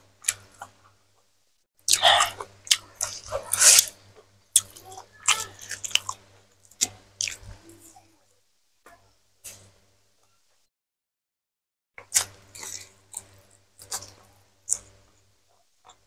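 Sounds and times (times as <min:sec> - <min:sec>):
chewing with wet smacks: 0:01.9 - 0:03.9, 0:04.5 - 0:08.0, 0:12.0 - 0:15.2.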